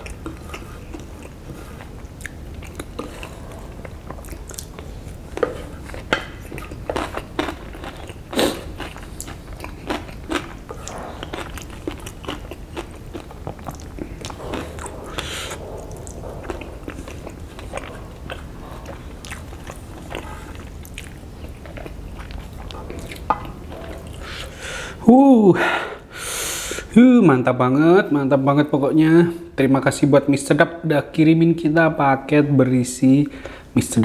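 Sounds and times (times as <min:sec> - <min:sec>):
chewing and mouth smacking: 0:00.0 - 0:24.6.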